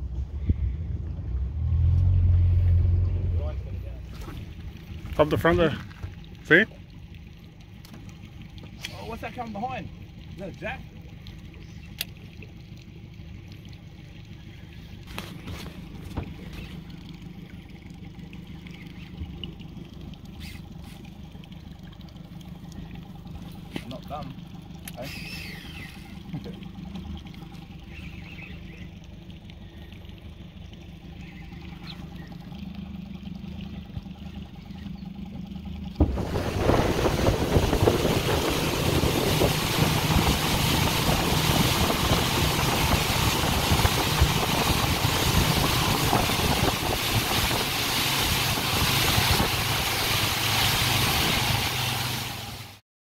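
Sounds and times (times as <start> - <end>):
low steady hum: 0.0 - 52.7
outboard motor running: 0.0 - 52.8
wind: 0.0 - 52.8
wake spray rushing: 35.9 - 52.8.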